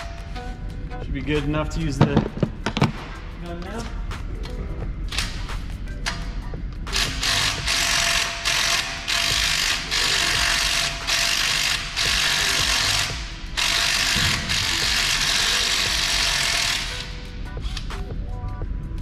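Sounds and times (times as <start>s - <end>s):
pneumatic impact gun bursts: 6.9s - 17.2s.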